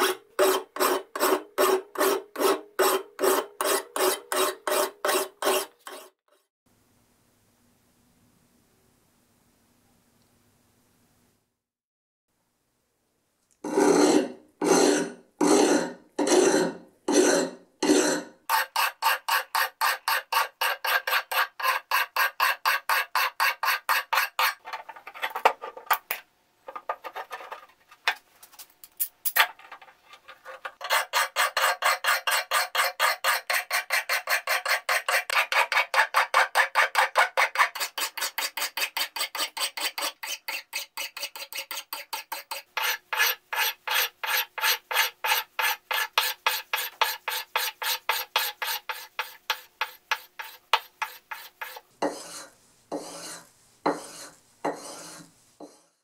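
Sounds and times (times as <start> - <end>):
file scraping metal blade: 0.0 - 6.4, 13.6 - 25.5, 30.2 - 56.0
sharpening block rubbing blade: 17.2 - 24.6, 30.8 - 55.8.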